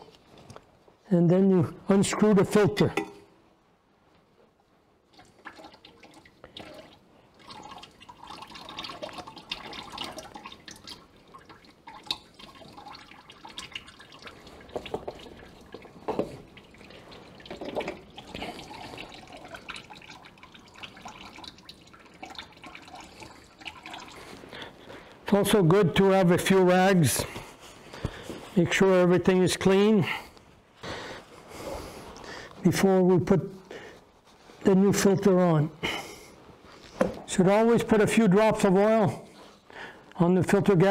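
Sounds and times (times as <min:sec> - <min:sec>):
oil dripping into a pan: 0:05.1 - 0:24.5.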